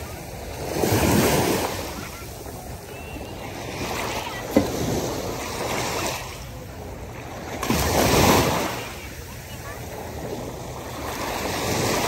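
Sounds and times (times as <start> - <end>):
small waves washing over sand: 0.0 - 12.0.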